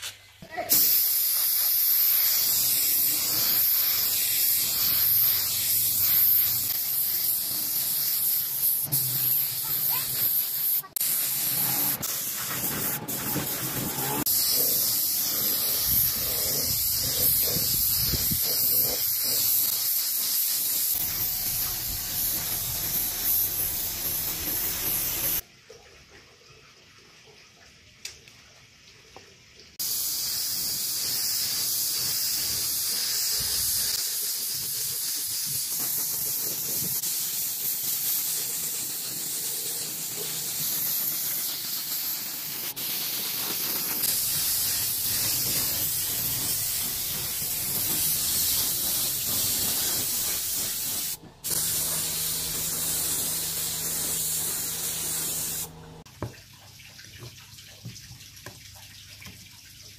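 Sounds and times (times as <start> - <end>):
steady spraying hiss: 0.5 - 25.4, 29.8 - 56.0.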